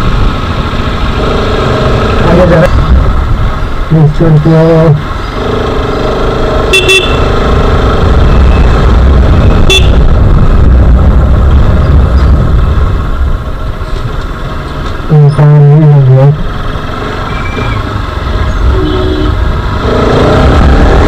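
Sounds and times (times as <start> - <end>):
motorcycle engine rumble: 0.0 - 21.0
wind: 0.0 - 21.0
vehicle horn toots: 6.7 - 7.2, 9.6 - 10.0, 18.7 - 19.5.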